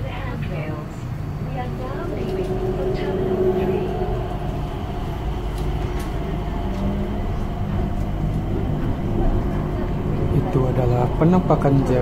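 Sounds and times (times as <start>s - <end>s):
people mover train hum: 0.0s - 12.0s.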